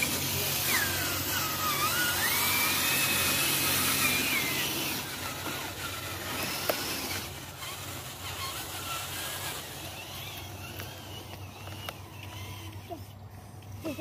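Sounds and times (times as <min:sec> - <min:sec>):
toy truck electric motor whining: 0:00.0 - 0:14.0.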